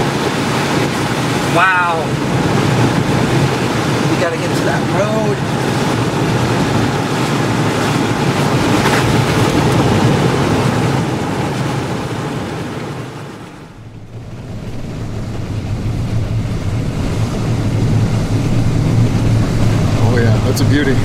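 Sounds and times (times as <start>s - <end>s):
road and wind noise in vehicle: 0.0s - 21.0s
low hum: 5.4s - 21.0s.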